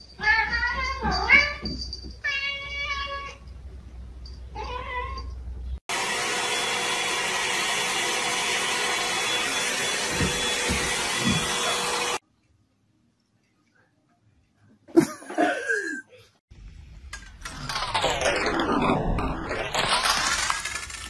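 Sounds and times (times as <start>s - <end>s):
hair dryer blowing: 5.9s - 12.2s.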